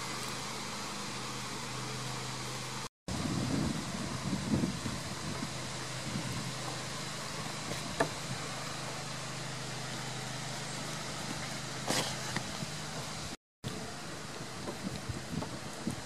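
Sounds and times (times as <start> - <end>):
low mechanical hum: 0.0 - 16.0
outdoor hiss: 0.0 - 16.0
short brushing noise: 11.8 - 12.6.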